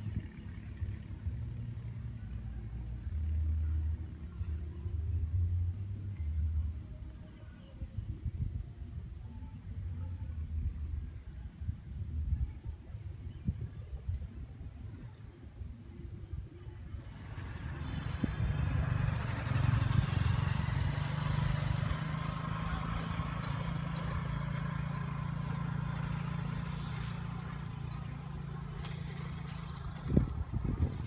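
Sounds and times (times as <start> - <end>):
vehicle engine running: 0.0 - 7.4, 16.6 - 31.0.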